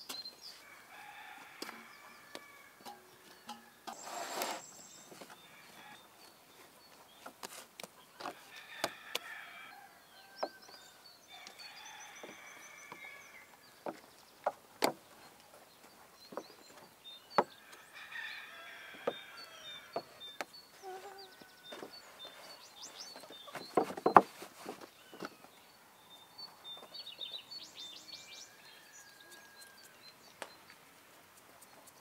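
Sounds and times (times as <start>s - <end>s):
sharp knocks and clicks: 23.6s - 24.3s.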